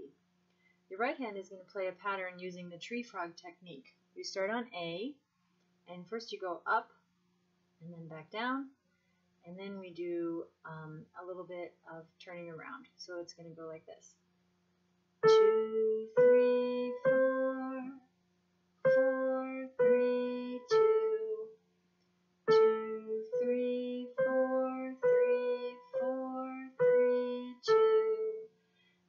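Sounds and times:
electronic keyboard melody: 15.2 - 17.9, 18.8 - 21.5, 22.5 - 28.4.

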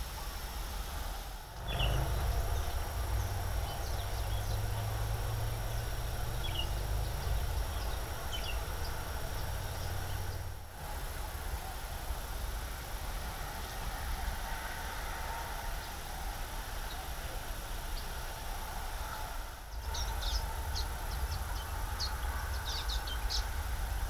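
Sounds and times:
steady hiss: 0.0 - 24.0
low rumble: 1.5 - 11.2.

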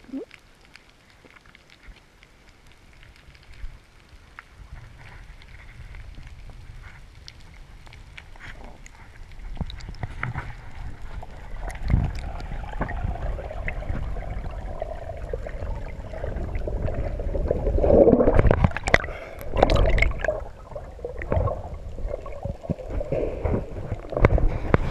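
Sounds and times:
water gurgling underwater: 8.5 - 24.9
bubbles clicking: 10.8 - 24.9.

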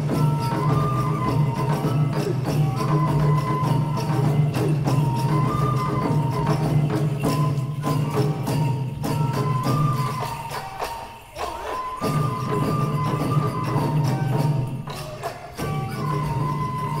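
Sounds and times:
folk melody: 0.0 - 17.0
jingling percussion strikes: 0.0 - 17.0.

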